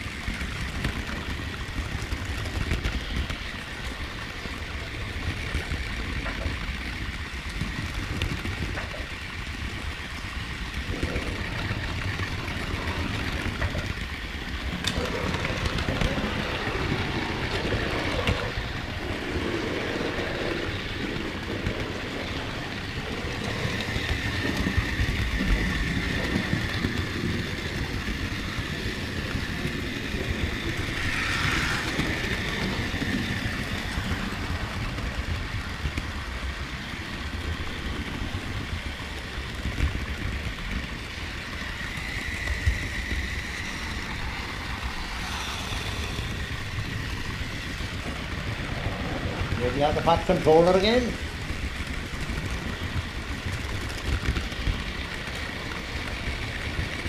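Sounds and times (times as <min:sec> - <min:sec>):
model train wheels clattering on rail: 0:00.0 - 0:57.0
high whine: 0:18.2 - 0:35.6.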